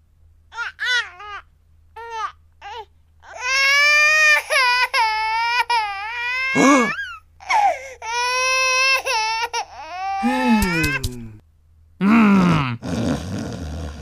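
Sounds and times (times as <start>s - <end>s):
cartoon voice crying: 6.5s - 7.1s, 10.2s - 11.4s.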